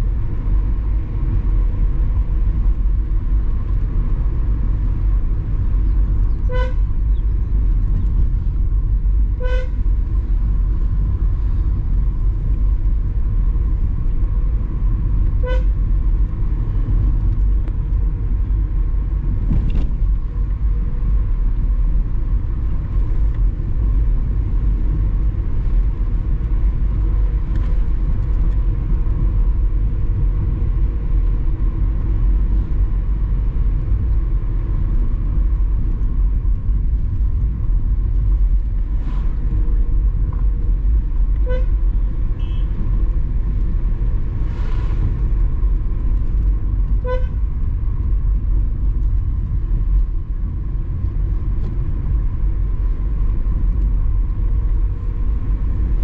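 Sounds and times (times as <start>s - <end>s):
car engine and road noise: 0.0s - 56.0s
car horn toots: 6.4s - 6.9s, 9.4s - 9.8s, 15.4s - 15.8s, 41.4s - 42.8s, 47.0s - 47.4s.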